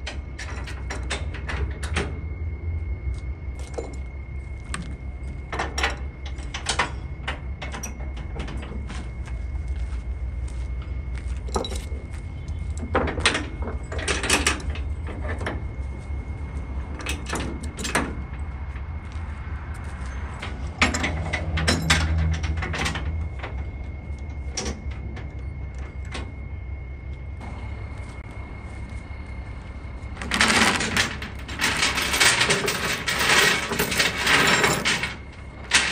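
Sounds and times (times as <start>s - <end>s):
steady low rumble: 0.0s - 35.9s
steel chains clanking: 3.6s - 4.1s, 11.4s - 12.1s, 20.0s - 23.7s, 30.2s - 35.9s.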